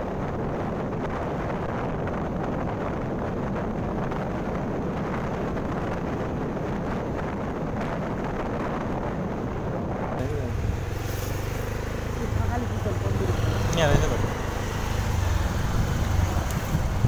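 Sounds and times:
road noise: 0:00.0 - 0:17.0
wind rushing over microphone: 0:00.0 - 0:17.0
motorbike engine: 0:10.2 - 0:17.0.

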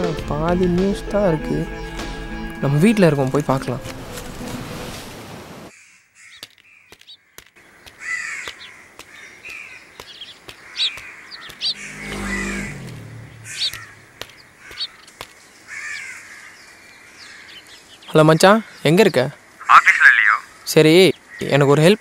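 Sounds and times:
crows cawing: 0:05.7 - 0:21.8
high bird chirps: 0:05.8 - 0:19.3
low rumble going by: 0:11.6 - 0:14.5.

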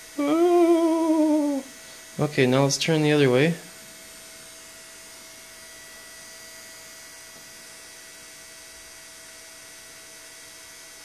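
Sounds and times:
electric motor hum: 0:00.0 - 0:08.8
thin whining tones: 0:00.1 - 0:01.7.

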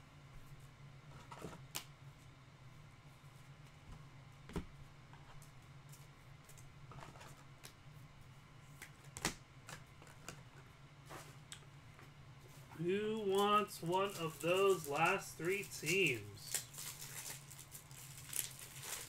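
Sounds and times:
steady low hum: 0:00.0 - 0:19.0
trading cards ticking and clicking: 0:13.1 - 0:16.6.

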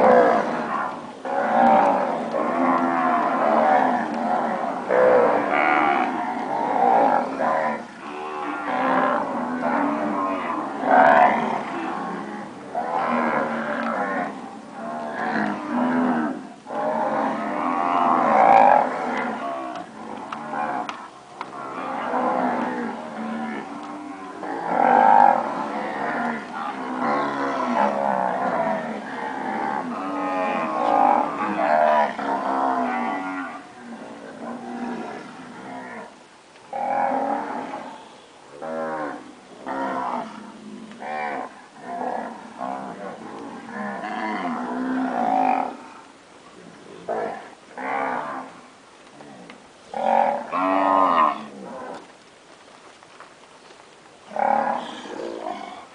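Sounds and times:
cows mooing: 0:00.0 - 0:34.0, 0:49.2 - 0:52.1, 0:54.3 - 0:55.8.

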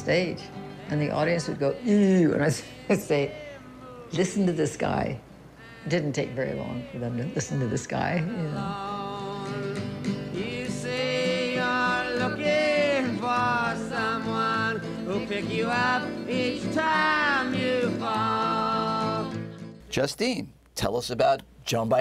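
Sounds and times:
woman and man singing: 0:00.0 - 0:19.8
guitar: 0:00.0 - 0:22.0.

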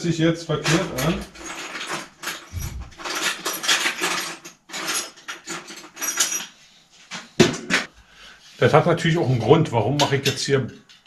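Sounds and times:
small metal parts clinking: 0:00.6 - 0:06.6.

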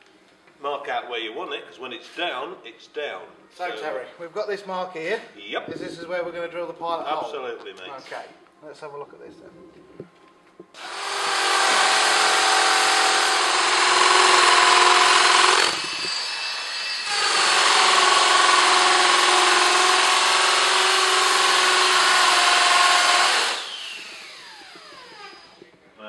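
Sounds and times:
drill boring into concrete: 0:10.8 - 0:25.6.

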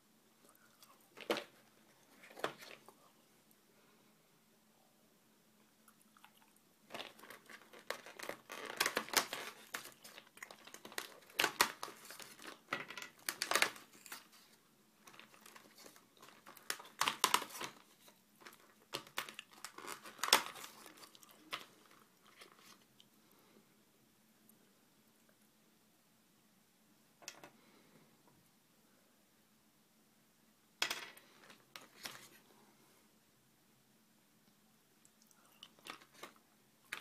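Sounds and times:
crinkling handling noise: 0:00.4 - 0:03.1, 0:06.8 - 0:23.1, 0:30.8 - 0:32.5, 0:35.4 - 0:37.0.

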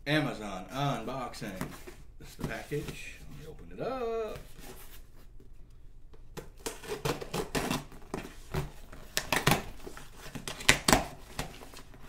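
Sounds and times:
scissors snipping tape and cardboard: 0:06.4 - 0:08.2.

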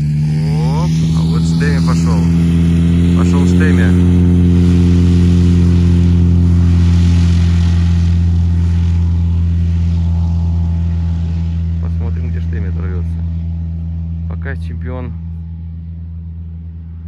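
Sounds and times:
motorglider engine and propeller drone: 0:00.0 - 0:17.0.

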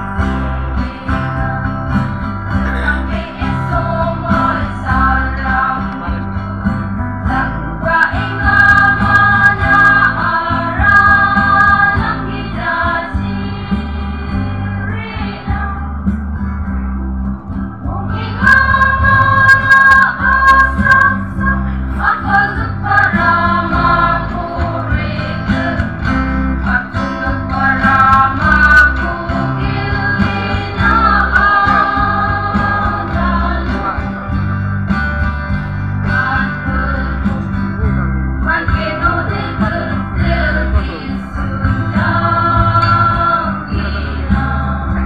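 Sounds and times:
instrumental accompaniment with bass: 0:00.0 - 0:45.0
choir singing: 0:02.7 - 0:06.1, 0:07.8 - 0:15.8, 0:17.9 - 0:34.0, 0:41.7 - 0:45.0.

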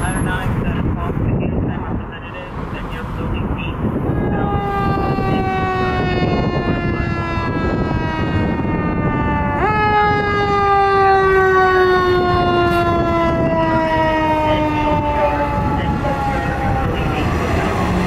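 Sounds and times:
mechanical siren wailing: 0:04.0 - 0:18.0.

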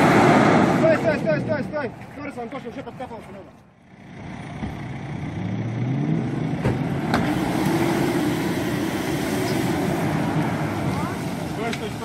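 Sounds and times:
engine revving hard: 0:04.1 - 0:11.8.

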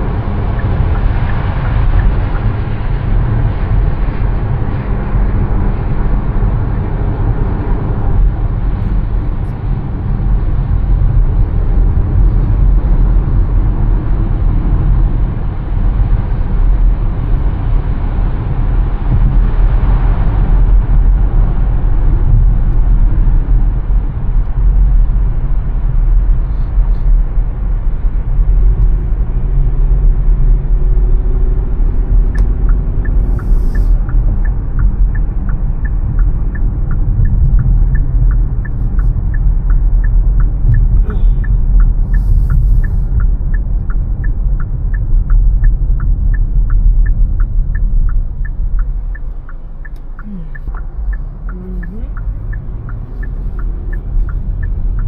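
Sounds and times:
car road and engine rumble: 0:00.0 - 0:55.0
light regular ticking: 0:31.8 - 0:55.0.

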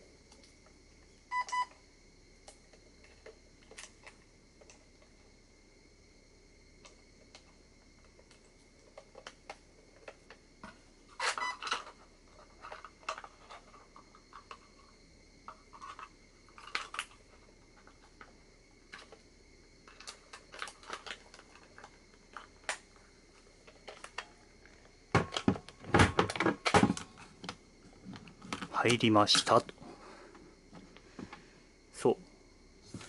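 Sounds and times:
battery and wiring clattering: 0:06.8 - 0:14.9, 0:15.5 - 0:19.2, 0:19.8 - 0:29.9.

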